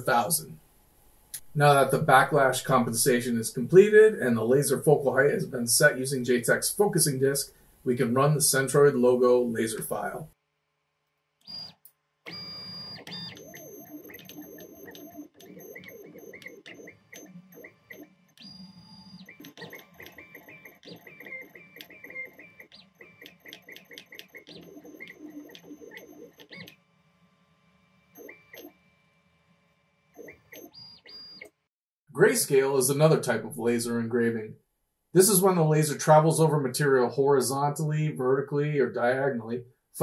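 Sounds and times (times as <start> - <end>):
stepper motors whining: 11.4 - 31.5.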